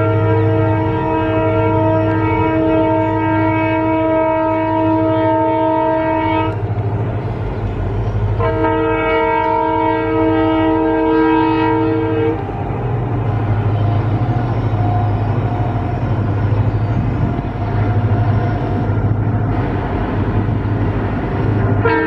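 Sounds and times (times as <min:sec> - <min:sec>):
locomotive horn blasts: 0:00.0 - 0:06.7, 0:08.3 - 0:19.0, 0:21.8 - 0:22.0
diesel engines rumbling: 0:00.0 - 0:22.0.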